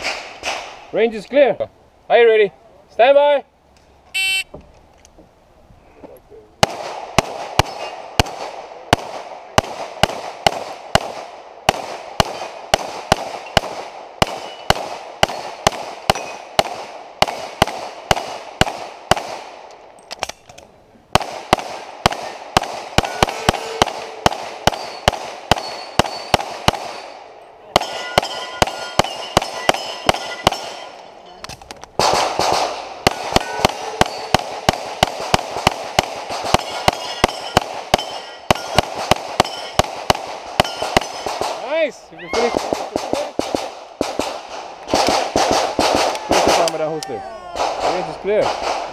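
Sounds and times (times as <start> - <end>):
rapid pistol fire: 6.6 - 19.6, 21.1 - 27.2, 32.0 - 41.7, 42.4 - 46.9, 47.6 - 48.9
steel targets ringing: 23.0 - 27.2, 27.8 - 31.2, 33.1 - 34.7, 36.6 - 39.9, 40.6 - 41.3.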